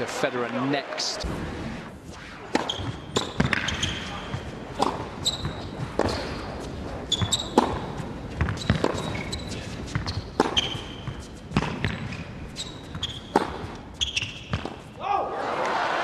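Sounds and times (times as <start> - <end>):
rackets striking tennis ball: 2.5 - 15.0
tennis ball bouncing: 2.5 - 15.0
shoes squeaking on court: 2.7 - 15.0.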